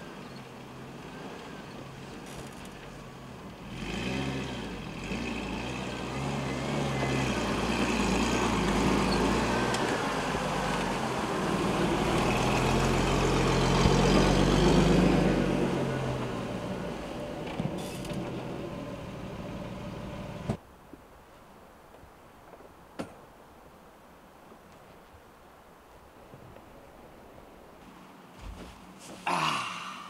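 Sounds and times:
truck engine running at low revs: 0.0 - 20.7.

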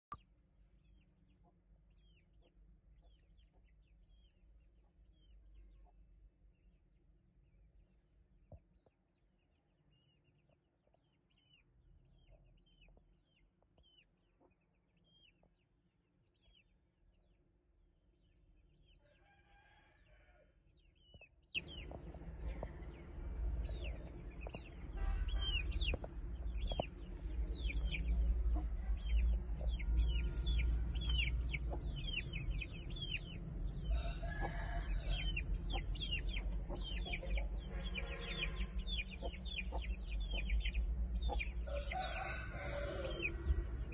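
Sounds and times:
chicks chirping: 0.8 - 6.0, 12.2 - 15.6, 20.7 - 43.9
low rumble: 21.6 - 37.7, 43.0 - 43.9
chicken clucking: 23.6 - 33.3, 34.3 - 38.3, 38.9 - 43.4.

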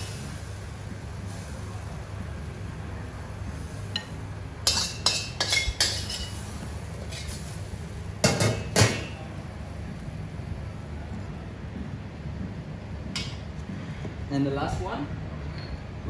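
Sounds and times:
metal spoon scraping wok: 4.7 - 7.5.

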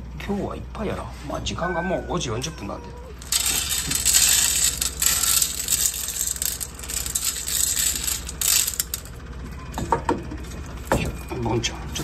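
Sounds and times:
dry kibble rattling onto metal tray: 3.2 - 9.2.

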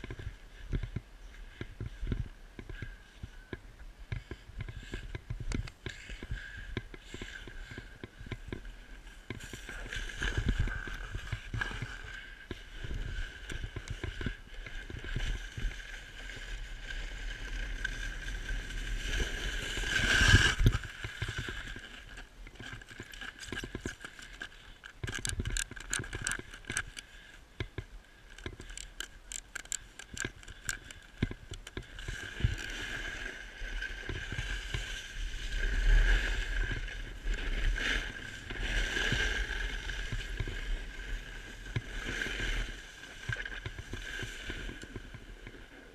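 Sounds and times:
snowboard scraping over snow: 7.1 - 23.2, 31.9 - 45.9.

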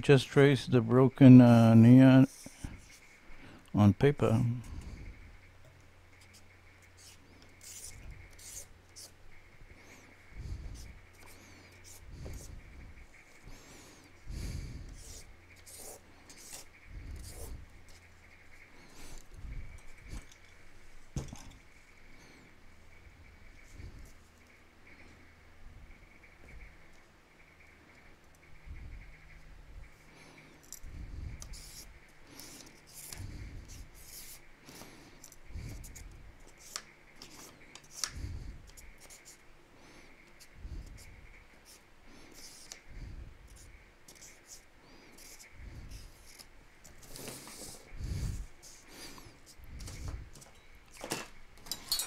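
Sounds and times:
steady low hum: 0.0 - 52.0
pen scratching on paper: 6.2 - 9.5, 10.2 - 13.8, 14.4 - 18.4, 31.1 - 35.0, 35.6 - 39.4, 40.2 - 50.2.

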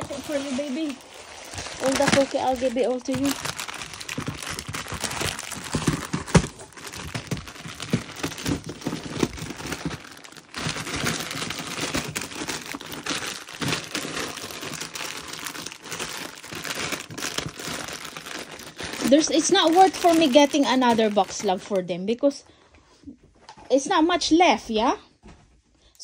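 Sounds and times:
cardboard scraping: 0.0 - 21.6
plastic wrappers crinkling: 0.0 - 22.3.

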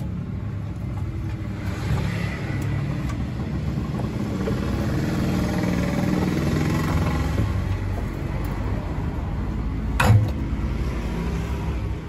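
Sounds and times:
sharp metal clunk: 10.0 - 10.6.

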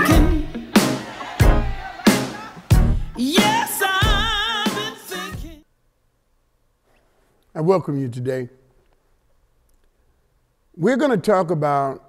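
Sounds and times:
heavy beat hits: 0.0 - 4.8.

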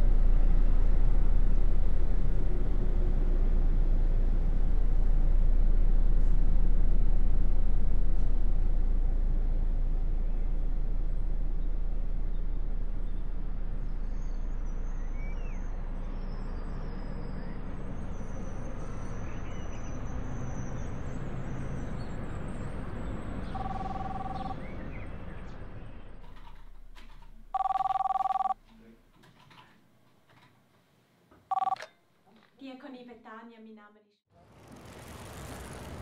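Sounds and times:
distant traffic noise: 0.0 - 28.6, 34.4 - 36.0
bird chirps: 23.5 - 25.1
two-tone telephone ring: 23.6 - 24.6, 27.6 - 28.6, 31.5 - 31.9.

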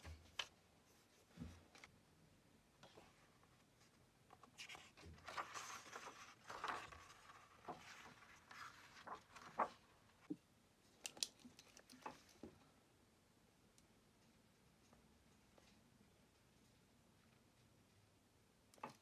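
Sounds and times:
paper pages rustling: 4.3 - 10.4.

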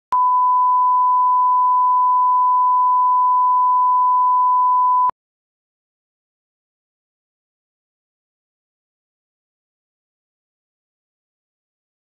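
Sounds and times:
continuous test tone beep: 0.1 - 5.1.

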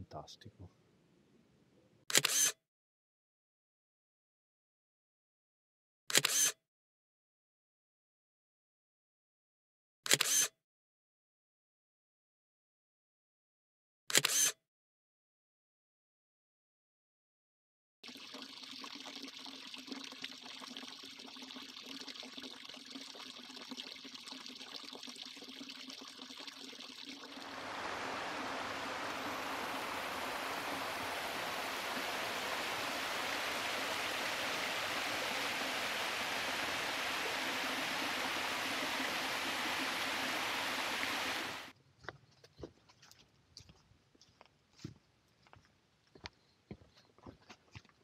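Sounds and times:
stream cascading over rocks: 27.3 - 41.7.

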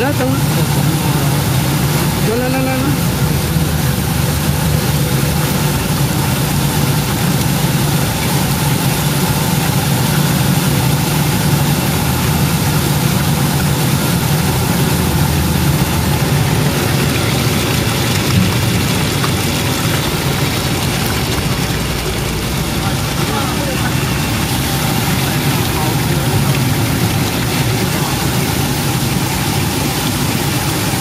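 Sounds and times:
machine hum with hiss: 0.0 - 31.0.

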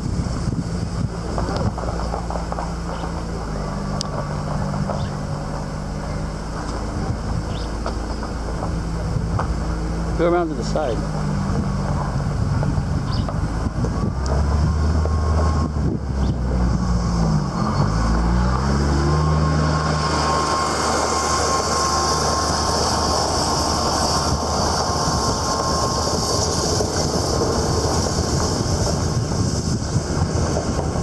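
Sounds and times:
car engine running: 0.0 - 31.0
tyres on gravel road: 0.0 - 31.0.

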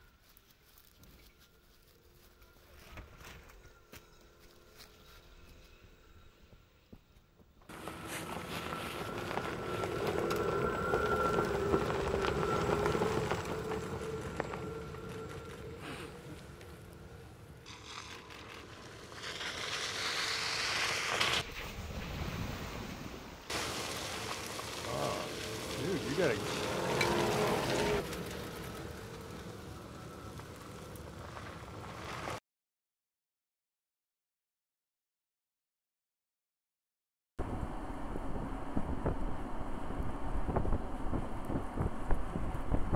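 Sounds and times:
tyres crunching on gravel: 7.7 - 17.0, 23.5 - 32.4
electric truck drive whine: 7.7 - 21.4, 25.4 - 31.6
tyres splashing through puddles: 22.0 - 32.4.

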